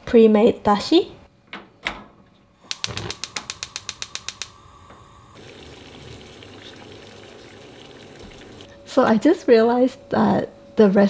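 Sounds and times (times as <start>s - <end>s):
stove igniter clicking: 2.6s - 5.1s
gas flame hissing: 2.6s - 5.5s.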